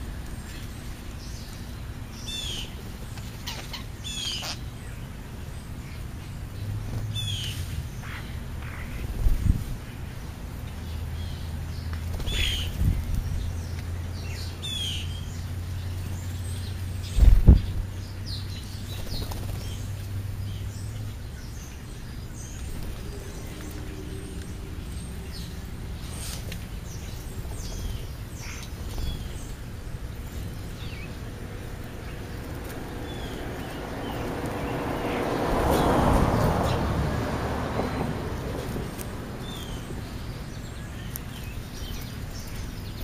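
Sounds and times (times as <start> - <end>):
birds chirping: 0.0 - 43.0
broad rushing noise: 18.6 - 42.9.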